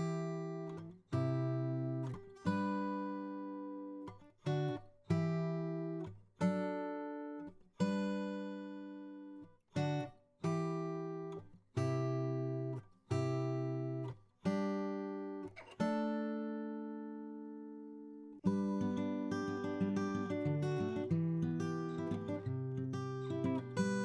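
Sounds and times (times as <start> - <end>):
guitar chords ringing: 14.6 - 24.0.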